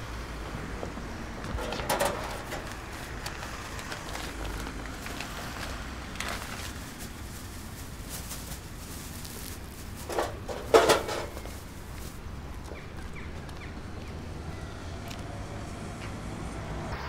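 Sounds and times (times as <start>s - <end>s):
small objects rustling: 1.4s - 12.8s.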